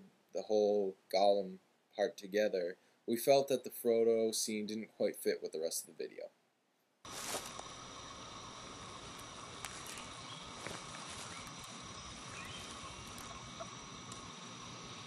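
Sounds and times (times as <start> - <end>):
background hiss: 0.0 - 15.0
high steady tones: 7.1 - 15.0
insect chorus: 7.1 - 15.0
faint clicks: 13.0 - 14.3.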